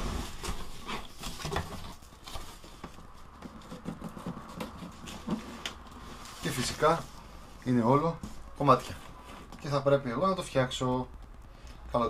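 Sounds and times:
cardboard rustling and scraping: 0.0 - 10.8.

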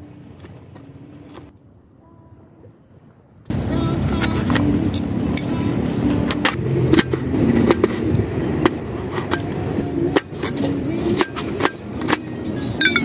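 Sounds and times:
low rumble: 3.5 - 11.0.

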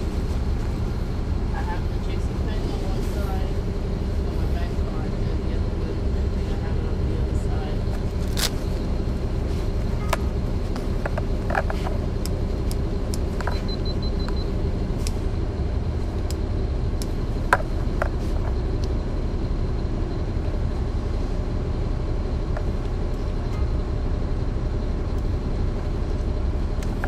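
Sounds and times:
bus diesel engine droning: 0.0 - 27.0
interior rattles and clicks: 4.6 - 19.0, 22.3 - 27.0.

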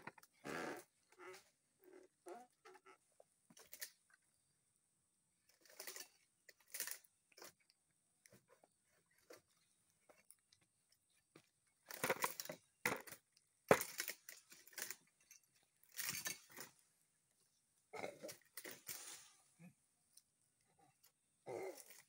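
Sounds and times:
fronds rustling: 18.5 - 19.8.

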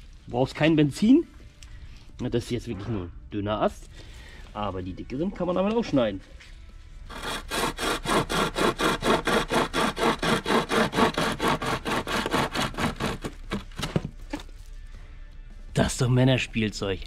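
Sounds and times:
pocket chainsaw rasping through branch: 7.1 - 13.8.

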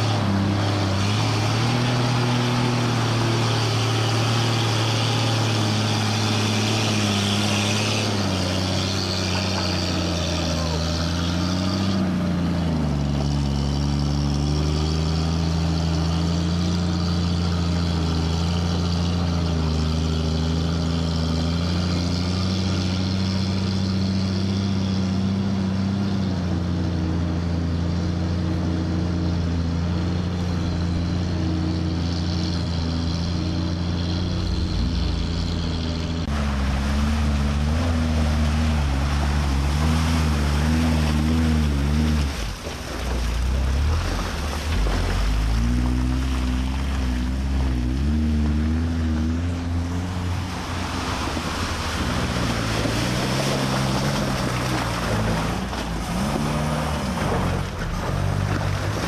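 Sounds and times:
off-road vehicle engines running: 0.0 - 59.0.

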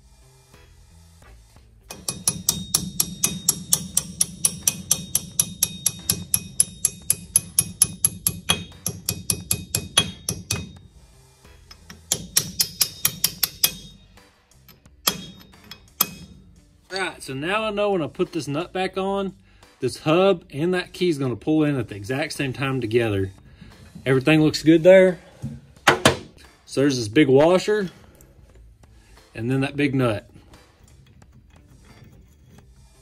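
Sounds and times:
hammer tapping metal: 1.9 - 10.9, 11.6 - 16.7.

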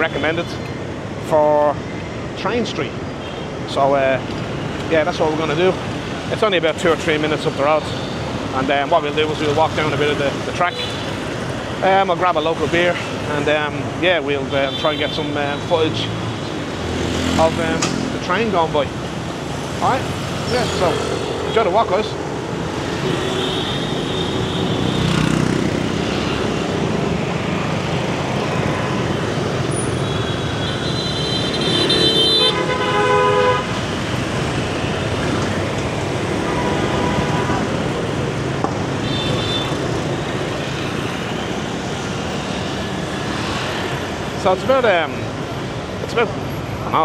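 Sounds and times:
motor scooter traffic: 0.0 - 47.0
horns tooting: 14.4 - 16.1, 23.0 - 25.6, 28.4 - 33.9, 38.9 - 41.0.

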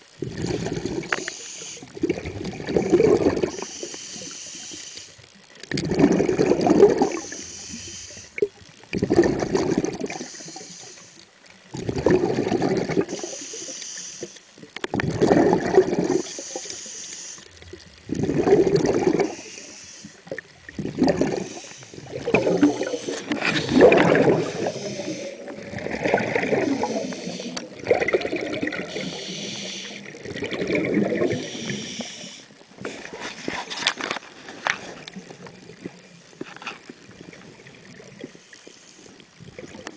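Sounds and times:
regulator hiss on inhale: 0.2 - 2.1, 3.0 - 5.4, 6.5 - 8.5, 9.8 - 11.6, 12.8 - 14.7, 15.8 - 27.8, 28.5 - 30.3, 31.2 - 33.5, 37.9 - 39.3.

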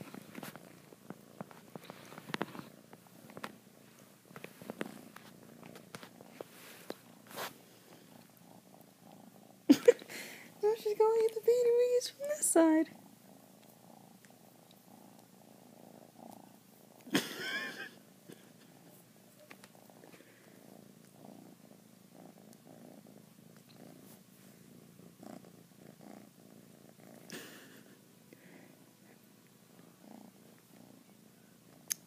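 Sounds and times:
cat purring: 0.0 - 32.0.

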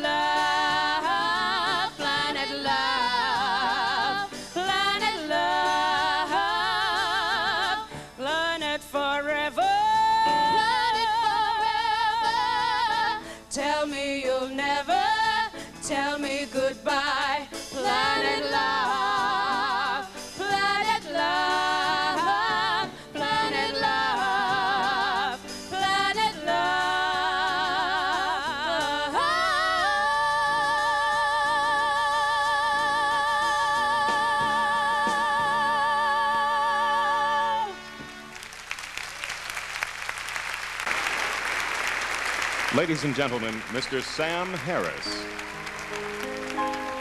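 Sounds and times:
live band playing: 0.0 - 8.6, 9.6 - 38.8, 40.8 - 47.0
women singing a duet: 0.0 - 38.1
audience applause: 38.0 - 47.0.

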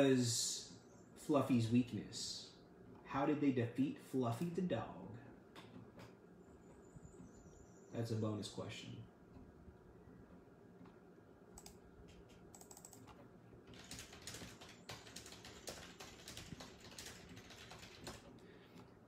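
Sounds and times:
faint keyboard typing: 9.3 - 19.0.

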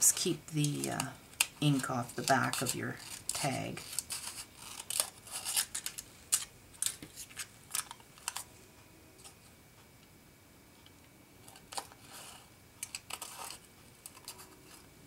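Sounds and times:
scissors cutting foil: 0.0 - 8.4, 12.8 - 14.8.

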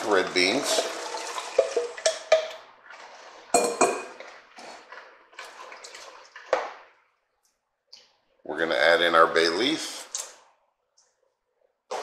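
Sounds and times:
dishes knocking and clinking: 0.7 - 2.6, 3.5 - 4.3.

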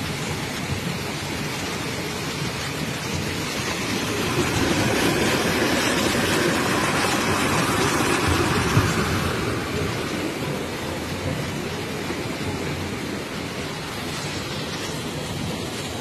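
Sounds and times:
floodwater rushing down street: 0.0 - 16.0.

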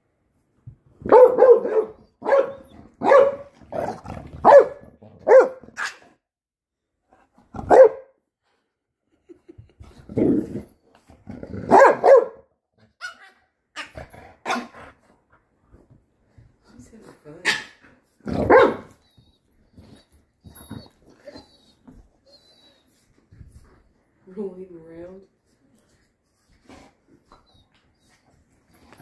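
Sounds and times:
dog barking: 1.0 - 6.0, 7.6 - 8.2, 11.7 - 13.2, 14.4 - 14.8, 18.4 - 18.9.

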